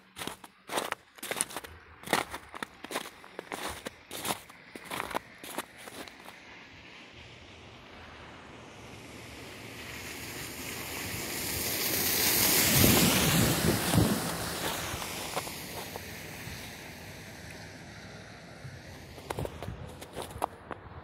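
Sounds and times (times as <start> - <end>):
tyres hissing on wet road: 2.2 - 20.7.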